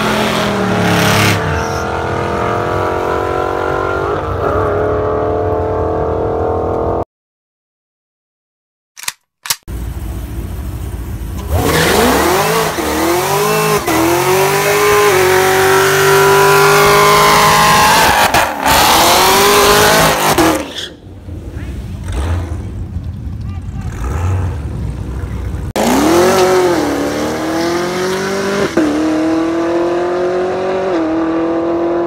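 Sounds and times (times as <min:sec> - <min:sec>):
car engine revving hard: 0:00.0 - 0:05.3, 0:11.4 - 0:20.7, 0:25.7 - 0:32.0.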